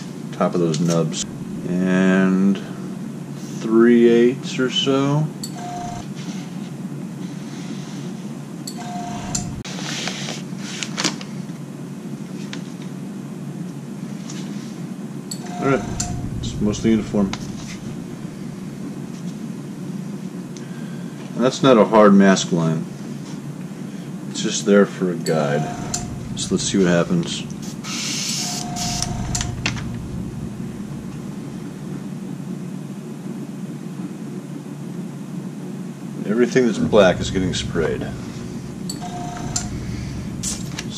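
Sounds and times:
extraction fan drone: 0.0s - 4.3s, 5.6s - 6.2s, 8.7s - 9.7s, 15.3s - 21.0s, 25.3s - 33.0s, 36.3s - 40.9s
workshop machinery humming: 0.8s - 3.3s, 5.4s - 6.1s, 8.7s - 9.7s, 15.3s - 20.6s, 25.2s - 32.5s, 36.7s - 40.9s
airbrush hisses: 25.7s - 32.0s.

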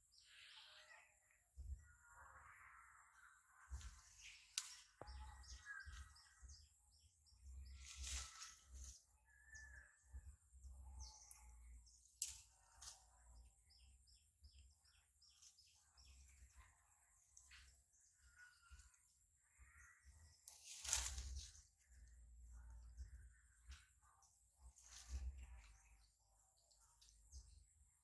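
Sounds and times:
small birds chirping: 0.0s - 28.0s
leaves and twigs crackling: 3.7s - 6.4s, 7.6s - 9.6s, 11.0s - 13.4s, 20.4s - 24.0s, 24.6s - 26.1s.

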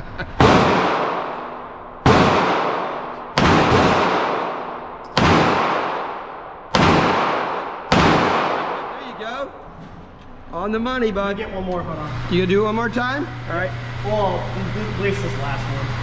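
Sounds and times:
pistol shots echoing indoors: 0.4s - 9.2s.

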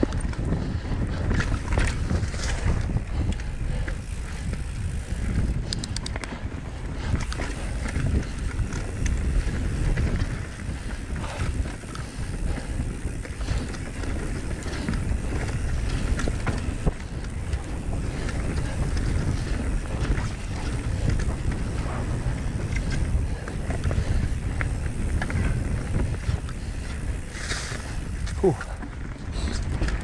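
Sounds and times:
bike rattling: 0.0s - 30.0s
bike tyres rumbling over dirt: 0.0s - 30.0s
wind buffeting microphone: 0.0s - 30.0s
sharp clicks: 5.7s - 6.3s.

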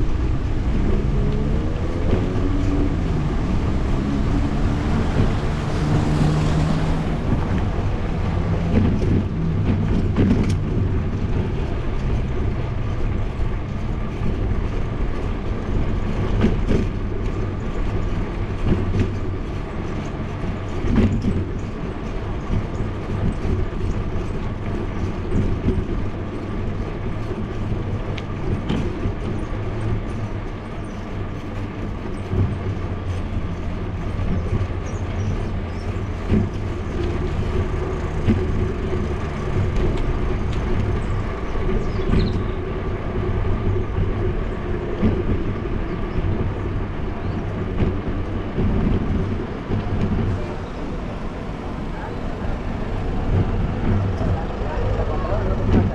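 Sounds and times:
bike rattling over bumps: 0.0s - 55.9s
tyres rumbling on paved road: 0.0s - 55.9s.

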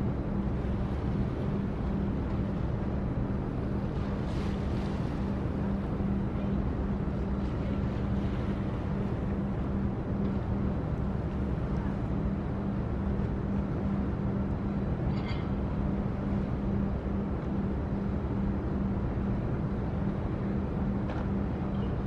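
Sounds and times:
low engine drone: 0.0s - 22.0s.

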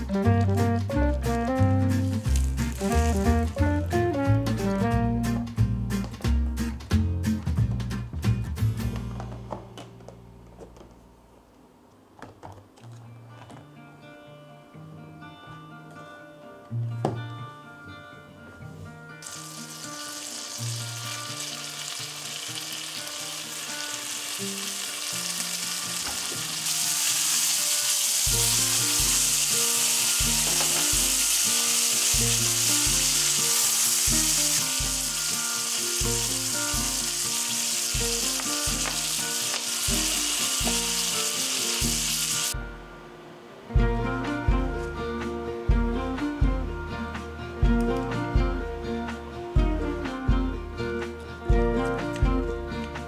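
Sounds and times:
meat sizzling in a frying pan: 2.2s - 3.3s, 19.2s - 42.6s.

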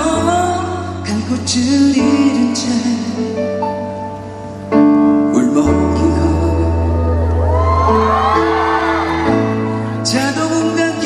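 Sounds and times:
man singing into microphone: 0.0s - 4.1s, 5.1s - 7.4s, 10.0s - 11.0s
backing music with piano: 0.0s - 11.0s.

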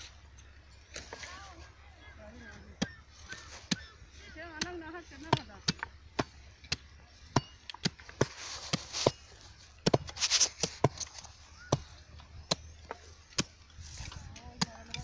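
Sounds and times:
sickle chopping sugarcane: 4.5s - 15.0s.

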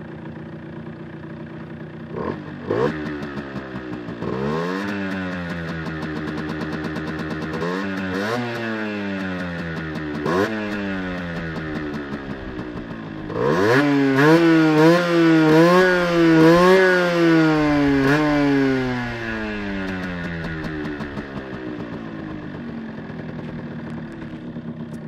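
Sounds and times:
two-stroke motorcycle engine revving: 0.0s - 25.0s.

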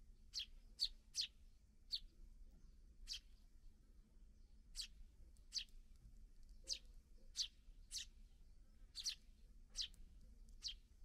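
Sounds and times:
sparrows chirping: 0.2s - 3.8s, 4.4s - 11.0s.

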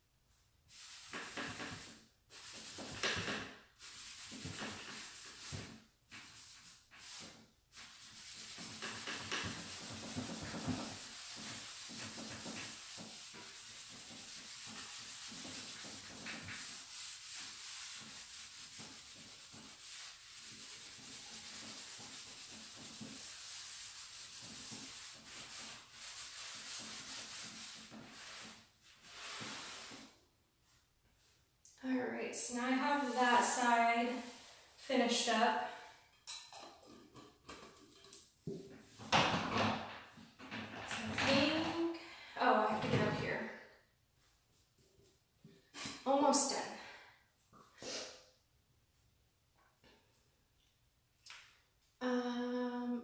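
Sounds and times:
pad rubbing on painted wood: 0.7s - 31.3s.

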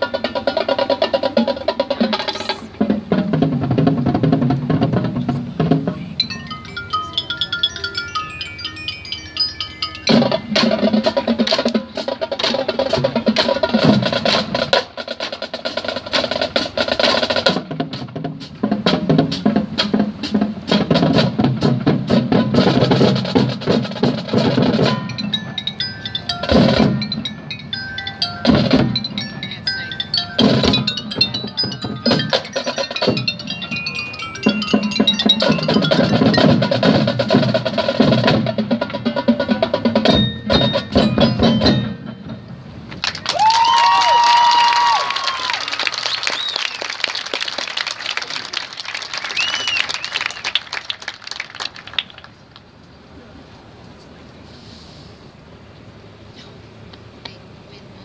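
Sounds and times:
marching band playing: 0.0s - 52.5s
high mallet notes: 4.9s - 14.0s, 23.8s - 42.9s.

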